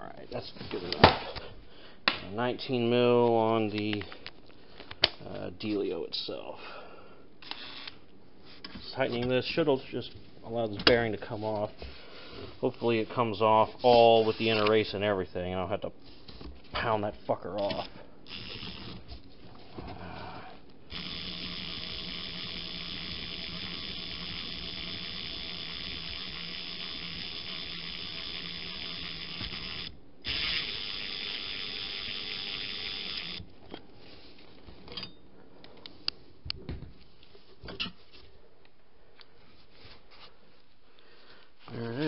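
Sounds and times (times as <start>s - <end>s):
cordless impact wrench running: 18.3s - 19.0s, 20.9s - 33.4s.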